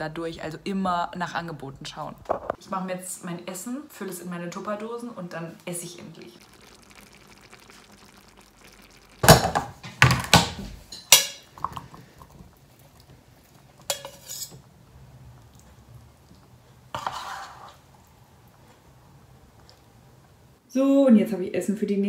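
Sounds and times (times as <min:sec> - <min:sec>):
pots and utensils clattering: 0:09.2 - 0:12.4, 0:13.6 - 0:14.7.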